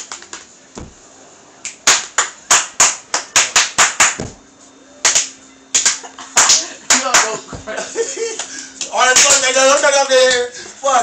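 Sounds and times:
hands clapping and slapping a beat: 0:01.6 - 0:04.4, 0:05.0 - 0:07.4.

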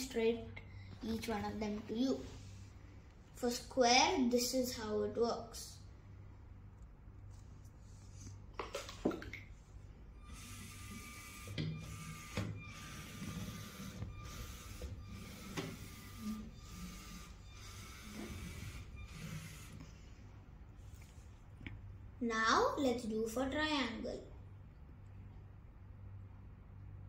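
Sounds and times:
robot motors whirring: 0:10.3 - 0:19.8.

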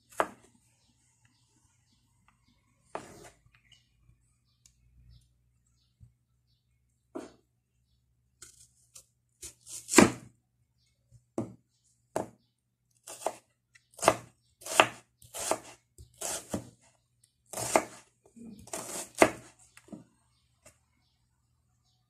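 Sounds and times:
knife cutting onion on wooden board: 0:00.0 - 0:00.5, 0:02.8 - 0:03.4, 0:08.4 - 0:10.3, 0:13.0 - 0:16.9, 0:17.5 - 0:20.1.

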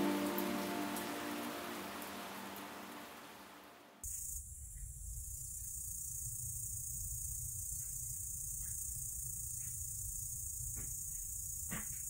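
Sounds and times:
faint music: 0:00.0 - 0:03.8
rain: 0:00.0 - 0:04.0
steady high hiss: 0:00.0 - 0:12.0.

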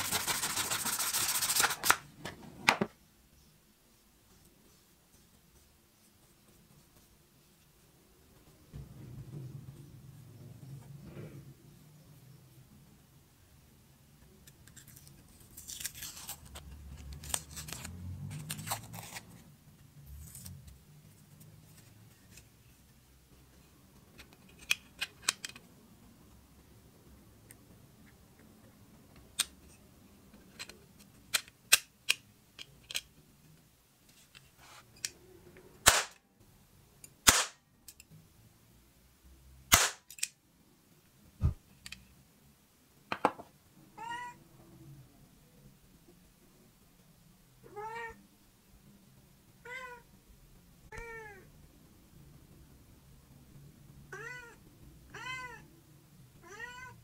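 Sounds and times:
cap gun shots: 0:35.8 - 0:36.2, 0:37.2 - 0:37.6, 0:39.7 - 0:40.1.

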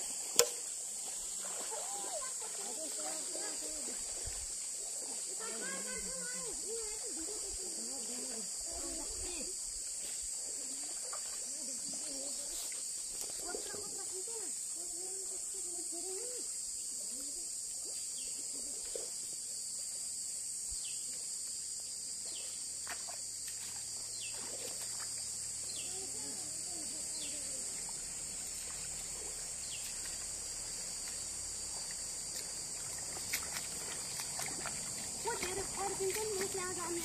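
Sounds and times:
feet splashing in shallow water: 0:00.0 - 0:14.3, 0:22.2 - 0:26.3, 0:26.9 - 0:37.0
insects droning: 0:00.0 - 0:37.0.

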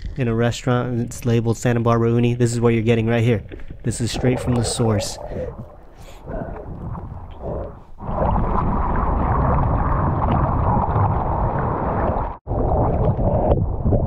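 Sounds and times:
seawater sloshing against camera: 0:02.8 - 0:10.8.

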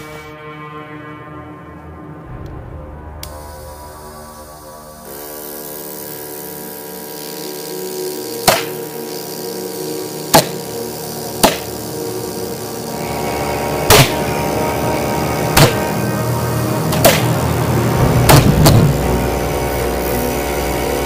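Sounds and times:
pulsejet ignition bangs: 0:02.2 - 0:05.2, 0:08.4 - 0:08.8, 0:11.4 - 0:11.9, 0:13.0 - 0:21.0.

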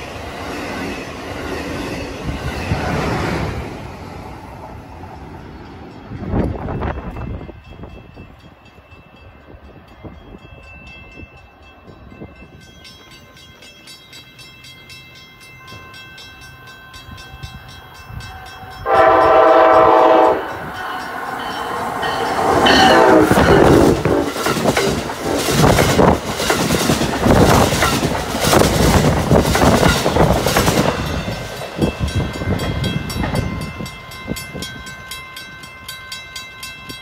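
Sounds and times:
train wheel and rail noise: 0:00.0 - 0:37.0
train horn blast: 0:18.8 - 0:20.8, 0:22.3 - 0:24.3.

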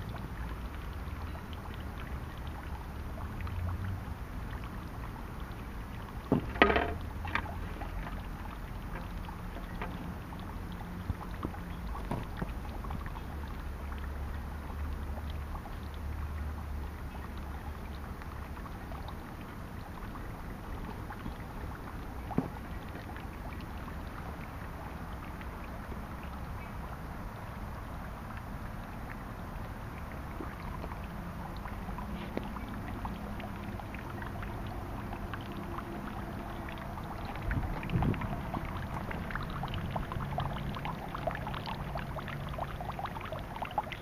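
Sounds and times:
drips plinking in a jar: 0:00.0 - 0:04.8, 0:05.9 - 0:19.2, 0:30.1 - 0:44.0
water trickling into stone basin: 0:00.0 - 0:44.0.

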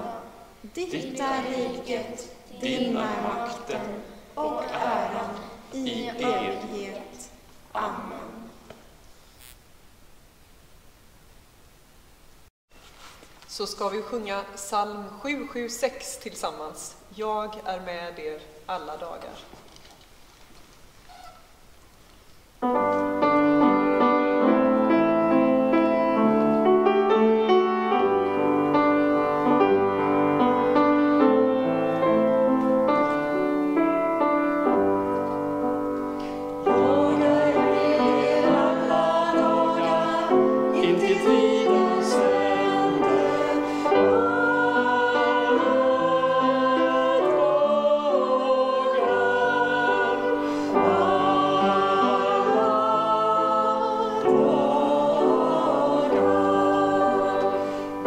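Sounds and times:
woman singing a hymn: 0:00.9 - 0:07.2, 0:36.6 - 0:57.8
grand piano playing: 0:22.6 - 0:58.0.

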